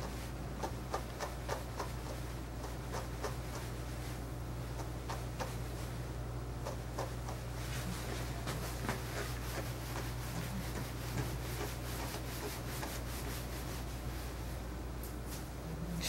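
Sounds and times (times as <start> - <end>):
brush stroking through dog fur: 7.0 - 14.5.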